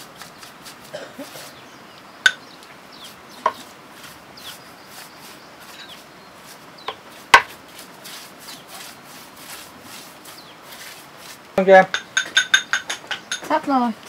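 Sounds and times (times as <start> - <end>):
paintbrush scratching brick wall: 0.0 - 1.6, 3.0 - 11.6.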